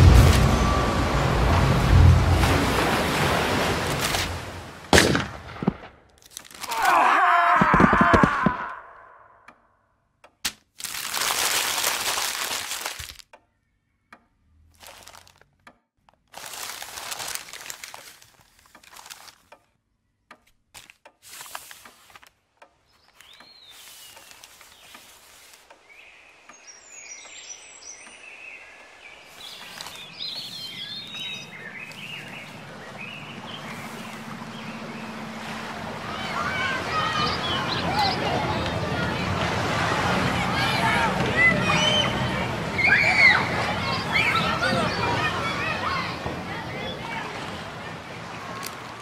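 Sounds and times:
birds chirping: 0.0 - 4.9, 21.9 - 49.0
newspaper crumpling and rustling: 6.2 - 6.9, 10.5 - 13.2, 14.7 - 15.4, 16.2 - 19.5, 20.8 - 22.3, 23.0 - 25.6, 29.3 - 30.1.

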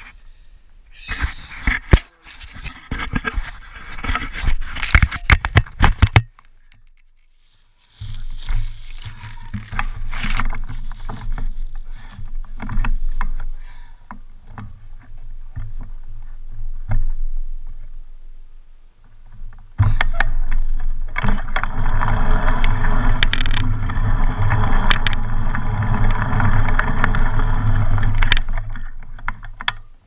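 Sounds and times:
scrapes and knocks on camera: 1.1 - 7.3, 8.0 - 17.9
low rumble: 20.6 - 29.2.

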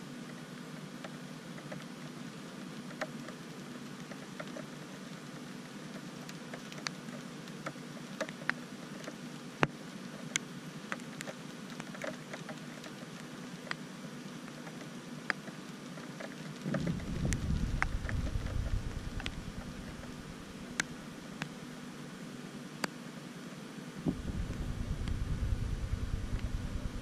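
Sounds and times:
steady hiss: 0.0 - 27.0
light ticks and taps: 0.3 - 2.1, 2.8 - 13.8
low hum: 16.6 - 21.7, 24.0 - 27.0.

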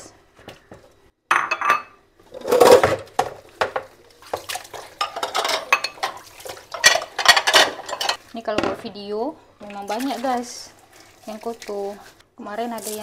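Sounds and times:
dishes clinking in a sink: 1.3 - 2.0, 2.6 - 8.9.

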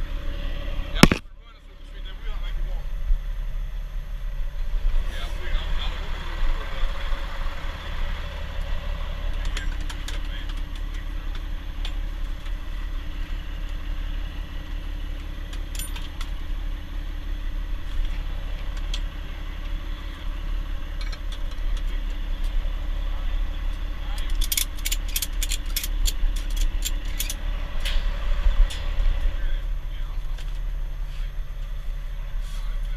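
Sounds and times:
diesel truck engine idling: 0.0 - 32.9
ratchet strap hardware clicking: 24.2 - 27.4.

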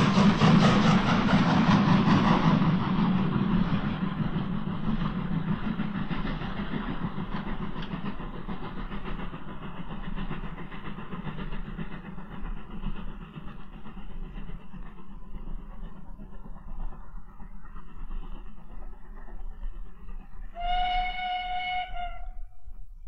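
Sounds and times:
rail noise: 0.0 - 23.0
steam locomotive exhaust beats: 0.0 - 23.0.

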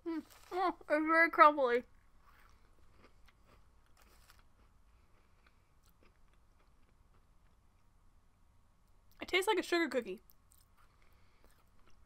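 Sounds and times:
chewing crunchy waffle: 2.2 - 7.6, 10.3 - 12.0.

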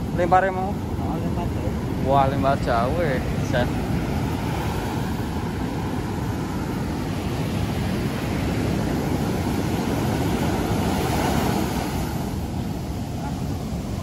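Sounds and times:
heavy surf breaking on beach: 0.0 - 14.0
wind blowing across microphone: 0.0 - 14.0.

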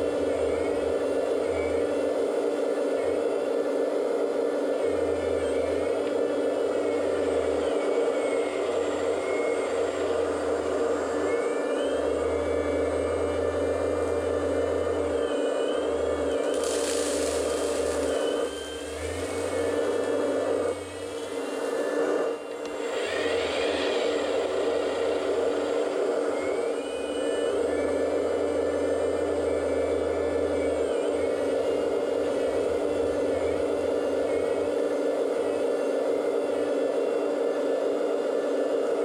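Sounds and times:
electric hydraulic pump whining: 0.0 - 39.0
gravel pouring into truck bed: 16.5 - 18.0.

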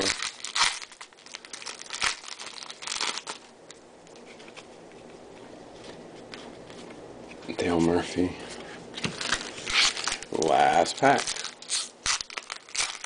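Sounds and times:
foil wrapper tearing and crinkling: 0.0 - 3.5, 9.1 - 13.0.

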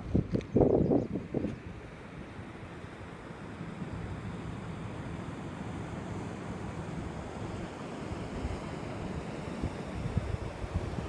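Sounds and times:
wind buffeting microphone: 0.0 - 1.8, 8.4 - 11.0.

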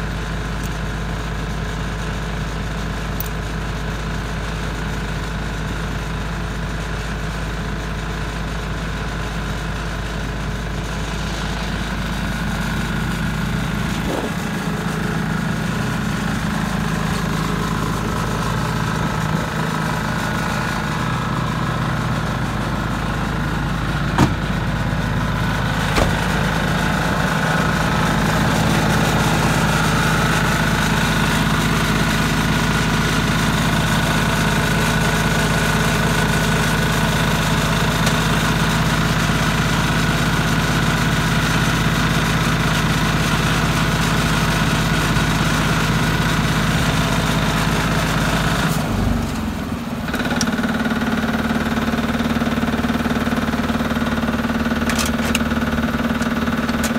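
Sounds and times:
engine idling: 0.0 - 56.9
sharp knocks: 24.1 - 24.6, 25.9 - 26.4.

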